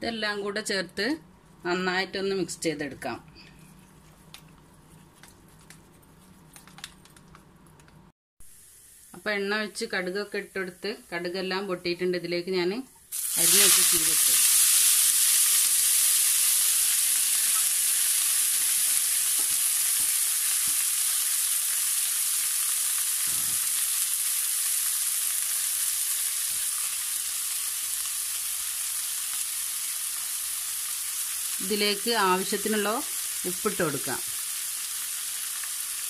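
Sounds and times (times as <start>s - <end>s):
leaves sizzling in hot oil: 8.4s - 12.5s, 13.1s - 36.0s.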